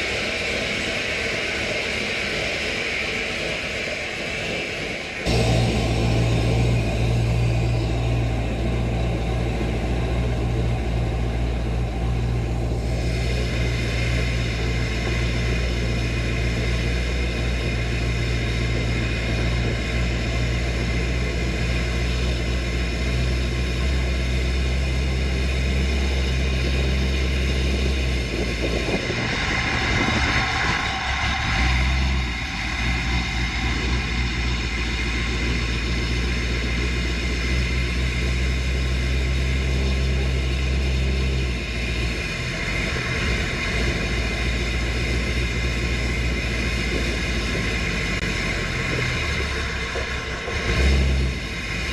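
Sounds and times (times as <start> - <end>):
truck engine running at intake: 0.0 - 51.9.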